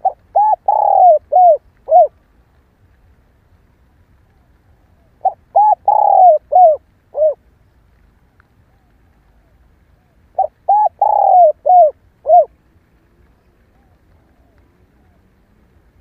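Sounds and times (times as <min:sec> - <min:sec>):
dove cooing: 0:00.0 - 0:02.2, 0:05.0 - 0:07.4, 0:08.7 - 0:12.5.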